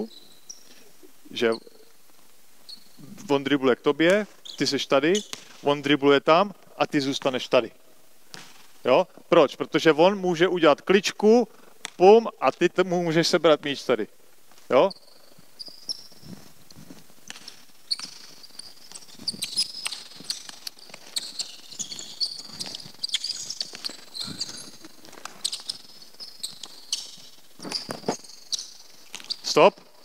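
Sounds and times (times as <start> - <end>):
shoes squeaking: 0.0 - 7.7, 14.5 - 30.0
footsteps: 14.4 - 28.3.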